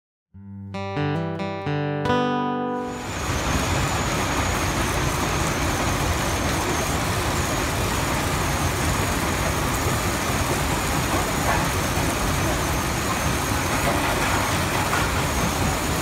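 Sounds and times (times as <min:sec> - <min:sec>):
faint high whine: 0:02.7 - 0:09.8
rock crushers running: 0:11.0 - 0:16.0.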